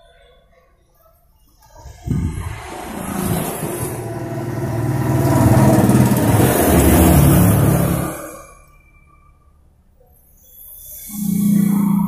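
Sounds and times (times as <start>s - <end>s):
passing vehicle engine: 1.8s - 8.7s.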